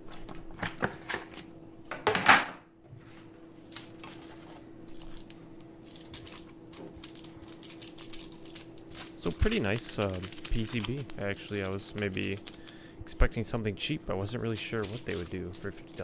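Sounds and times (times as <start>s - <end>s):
plastic keyboard parts clacking: 5.9s - 12.6s, 14.5s - 16.0s.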